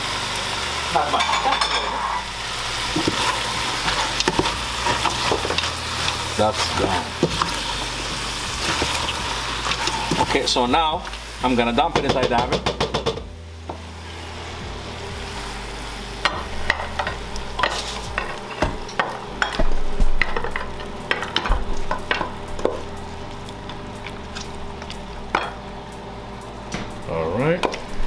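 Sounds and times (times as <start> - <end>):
meat sizzling in a pan: 0.0 - 25.8
utensil clinking and scraping pan: 1.1 - 2.2.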